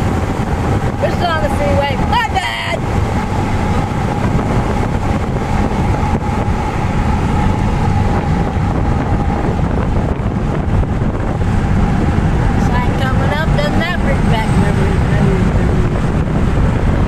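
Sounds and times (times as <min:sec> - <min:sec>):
road and engine rumble: 0:00.0 - 0:17.0
wind buffeting microphone: 0:00.0 - 0:17.0.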